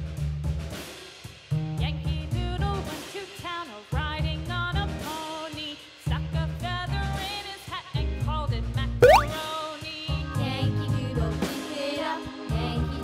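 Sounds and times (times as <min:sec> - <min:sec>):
bouncy children's tune: 0:09.0 - 0:09.3.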